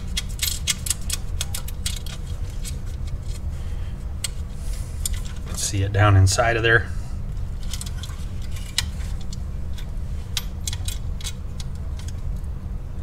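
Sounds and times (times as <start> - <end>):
low hum: 0.0 - 13.0
metallic clicks and clinks: 7.6 - 12.2.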